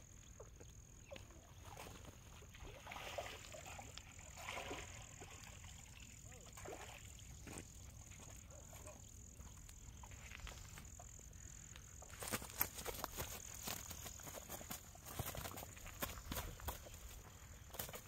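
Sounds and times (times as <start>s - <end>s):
faint outdoor background: 0.0s - 18.0s
handling clicks and rustles: 11.8s - 18.0s.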